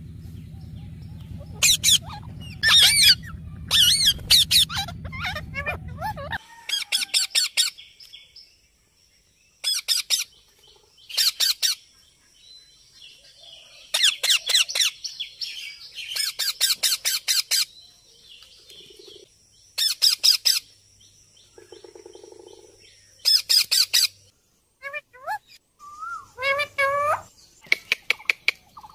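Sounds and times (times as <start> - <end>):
parakeets calling: 0.2 - 7.8, 9.6 - 10.4, 11.0 - 11.9, 13.9 - 17.8, 19.8 - 20.7, 21.6 - 28.9.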